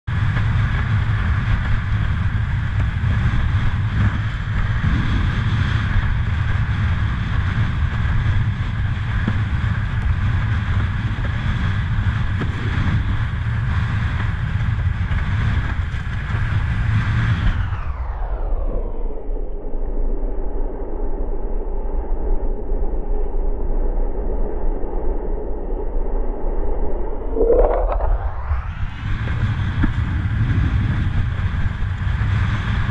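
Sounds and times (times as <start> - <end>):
wind buffeting microphone: 0.0 - 19.2, 26.7 - 32.9.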